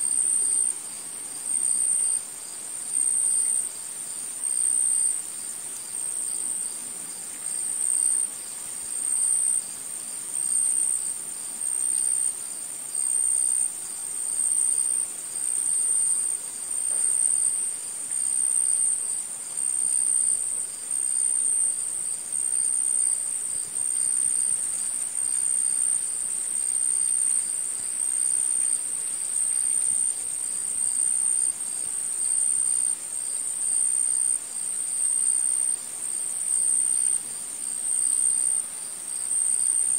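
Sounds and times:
high insect trill: 0.0 - 39.9.

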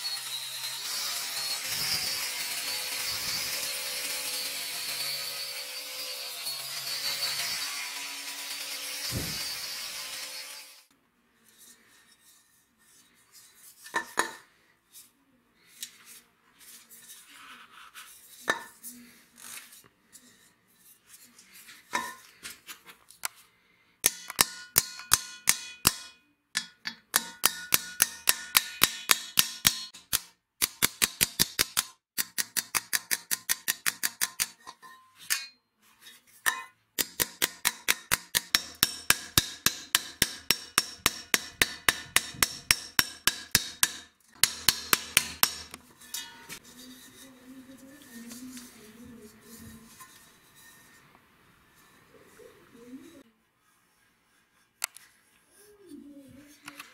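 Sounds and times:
hammer striking metal: 24.0 - 34.6, 36.5 - 46.6.

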